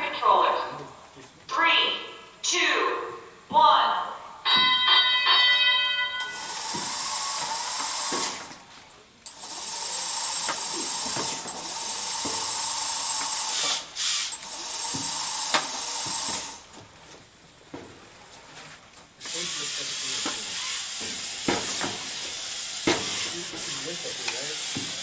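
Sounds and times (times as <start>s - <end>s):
robot electric motors whirring: 6.3s - 16.8s, 19.2s - 25.0s.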